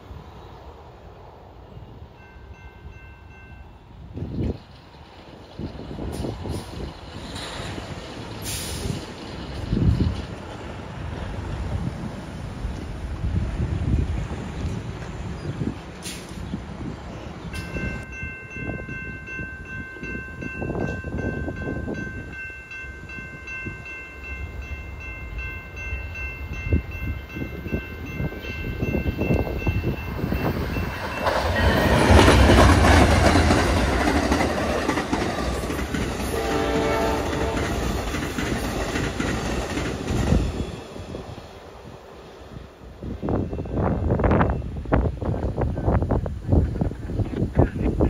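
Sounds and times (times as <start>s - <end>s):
train passing at speed: 0.0s - 48.0s
crossing bell ringing: 2.1s - 4.2s, 17.5s - 38.1s, 43.0s - 45.1s
train horn: 36.2s - 38.0s.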